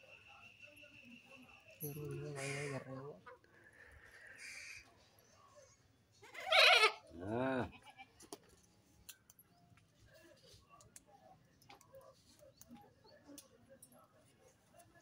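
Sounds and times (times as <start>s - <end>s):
goat bleating: 6.2s - 8.2s.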